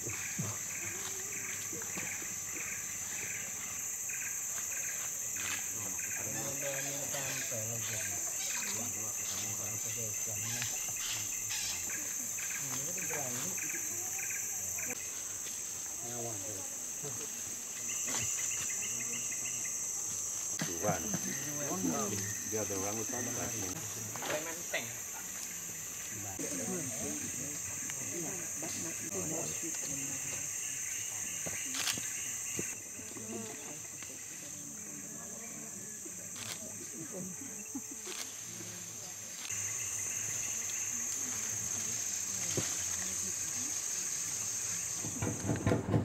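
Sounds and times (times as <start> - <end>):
insects droning: 0.0 - 46.0.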